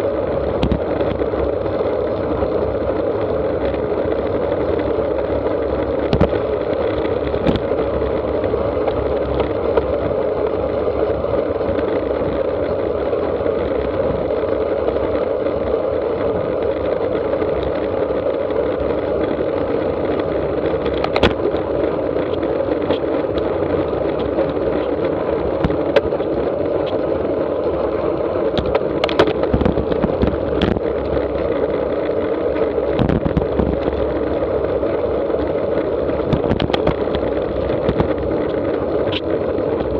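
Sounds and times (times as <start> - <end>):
bicycle tyre hum: 0.0 - 39.9
wind rush on microphone: 0.0 - 39.9.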